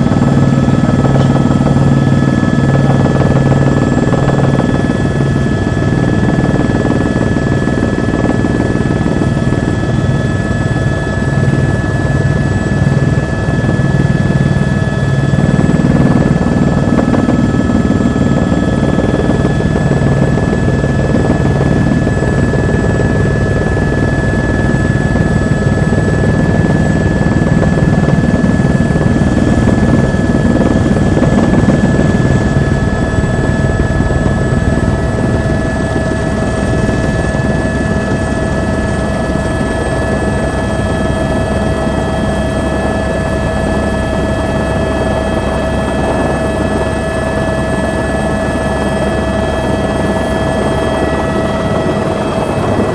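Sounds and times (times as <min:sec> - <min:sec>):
high whine: 0:00.0 - 0:10.6
helicopter rotor and engine noise: 0:00.0 - 0:52.9.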